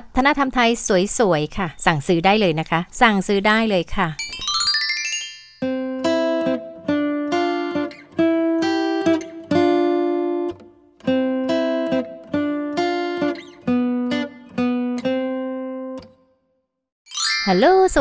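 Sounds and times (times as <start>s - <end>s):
plucked acoustic guitar melody: 5.6s - 16.2s.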